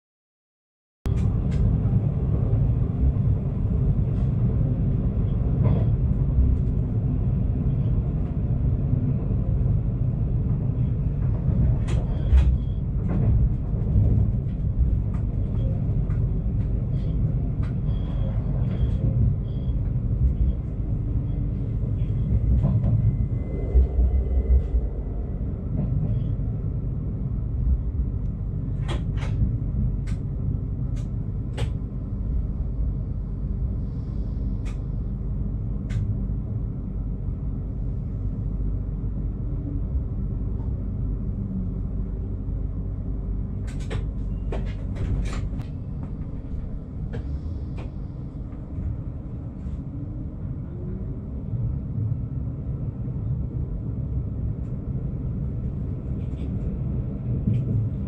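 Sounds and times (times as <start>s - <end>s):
train rumbling along track: 1.1s - 58.0s.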